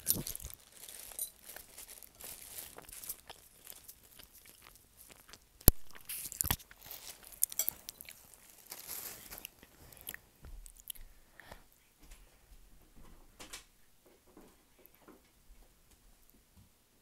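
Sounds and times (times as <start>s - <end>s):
crunching and crackling: 0.0s - 11.0s.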